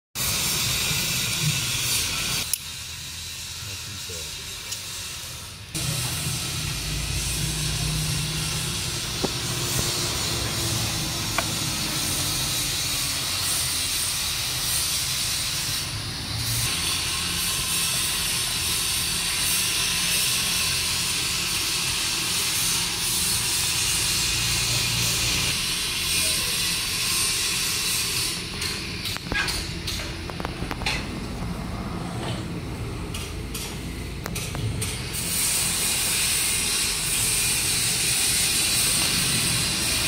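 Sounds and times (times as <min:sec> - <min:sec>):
steady hissing: 0:00.2 - 0:29.2.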